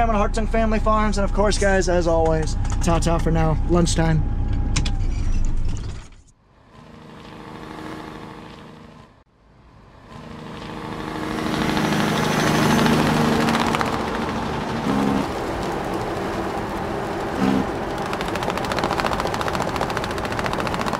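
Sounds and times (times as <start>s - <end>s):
farm machine engine running: 10.2s - 20.9s.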